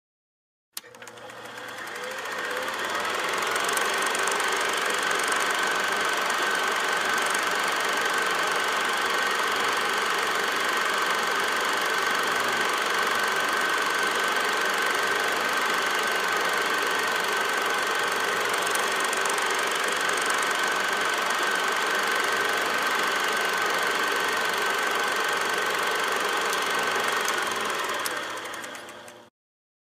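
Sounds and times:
small machine clattering: 0.8s - 29.3s.

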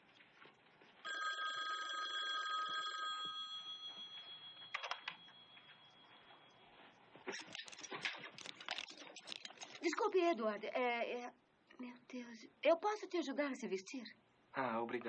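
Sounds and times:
bell-like ring: 2.6s - 6.9s.

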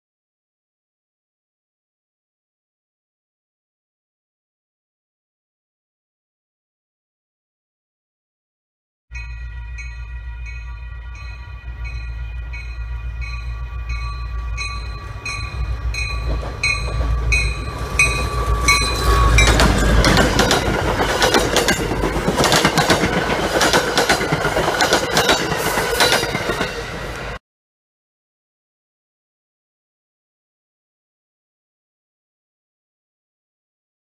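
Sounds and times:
low rumble of train: 9.1s - 27.4s
train bell ringing: 9.1s - 27.4s
train wheels clattering on rails: 15.4s - 27.4s.

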